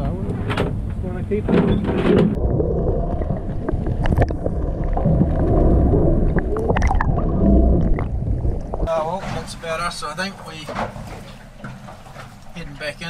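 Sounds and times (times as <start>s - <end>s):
low rumble: 0.0s - 9.2s
muffled water sloshing: 0.0s - 13.0s.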